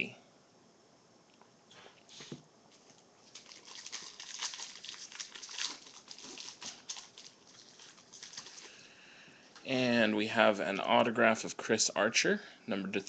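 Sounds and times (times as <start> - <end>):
plastic wrapper crinkling: 2.7 - 8.9.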